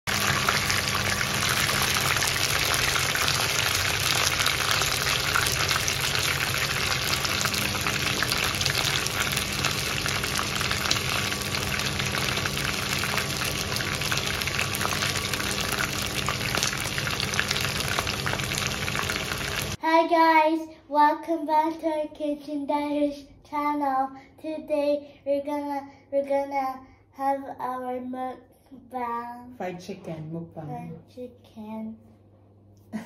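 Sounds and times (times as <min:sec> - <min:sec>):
chicken sizzling in oil: 0:00.1 - 0:19.8.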